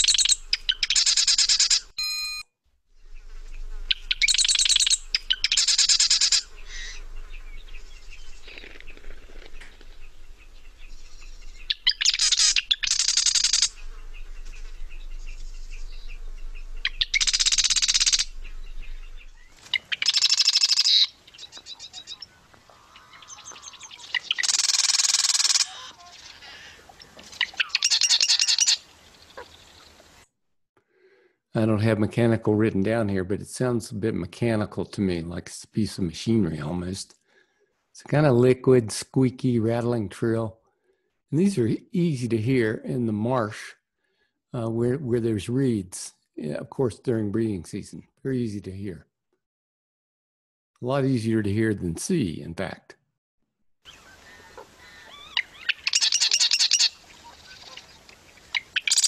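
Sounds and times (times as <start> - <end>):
faint bird chatter: 0.0 - 1.9, 3.0 - 30.2, 53.8 - 59.0
wren trilling: 0.0 - 1.9, 3.0 - 30.0, 53.8 - 59.0.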